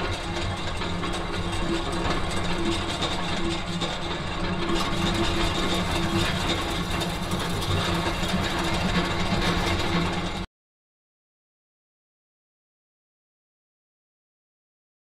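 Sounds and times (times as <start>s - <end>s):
mechanical drone with low hum: 0.0s - 10.4s.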